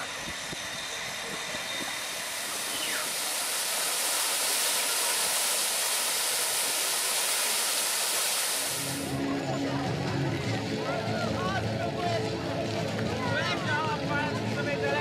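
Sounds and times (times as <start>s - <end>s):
fountain water splashing: 2.2s - 9.1s.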